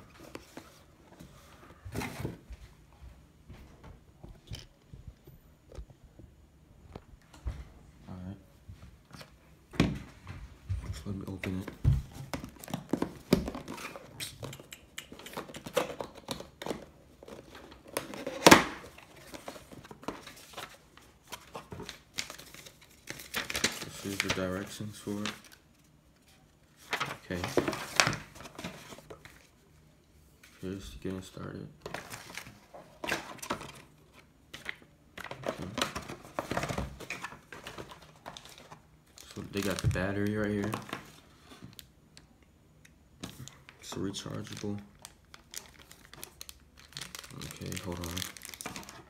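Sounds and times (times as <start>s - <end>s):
cardboard packaging handled: 15.4s - 25.6s, 26.7s - 29.5s, 43.2s - 49.0s.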